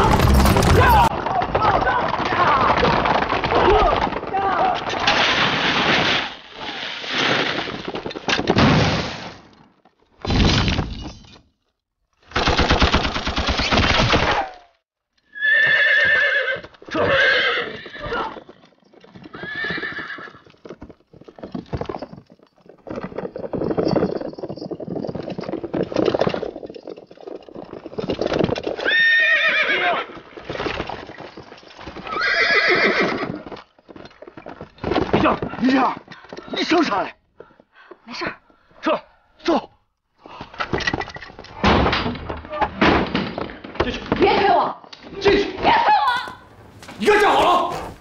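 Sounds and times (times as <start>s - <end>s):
loud blast-like crash: 0.0s - 1.1s
hooves clattering: 0.0s - 5.1s, 15.4s - 38.1s, 46.1s - 48.0s
horses whinnying: 15.3s - 21.9s, 27.8s - 31.2s, 31.8s - 33.7s.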